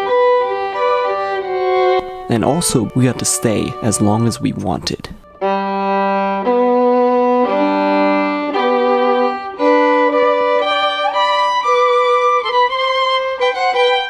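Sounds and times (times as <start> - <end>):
violin playing slow melody: 0.0 - 14.0.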